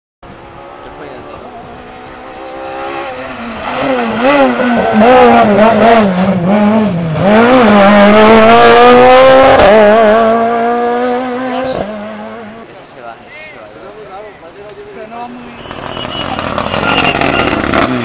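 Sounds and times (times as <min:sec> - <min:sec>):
rally car engine revving: 0:00.2 - 0:12.8, 0:15.0 - 0:18.0.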